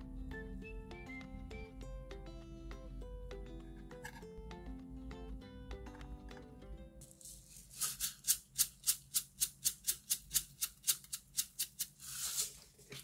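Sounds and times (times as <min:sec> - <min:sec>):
seed grinder grinding: 0:07.0 - 0:12.6.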